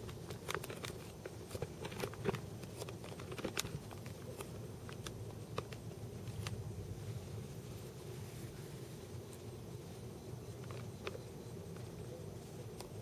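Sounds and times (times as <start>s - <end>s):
low steady rumble: 3.8s - 13.0s.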